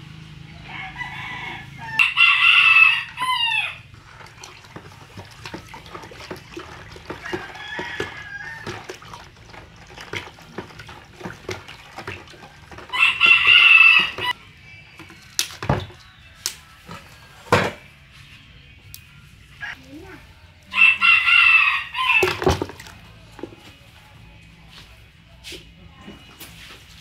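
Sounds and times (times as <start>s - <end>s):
rooster crowing: 0.4s - 3.9s, 7.1s - 9.1s, 12.9s - 14.4s, 20.7s - 22.6s
wooden spoon stirring water: 2.0s - 14.4s, 22.1s - 23.9s.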